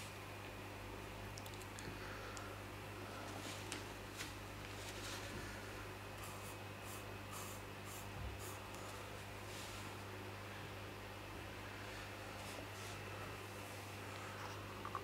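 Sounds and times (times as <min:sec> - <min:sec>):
faint soft rustles: 0:03.1 - 0:05.6, 0:08.8 - 0:10.0, 0:11.8 - 0:14.8.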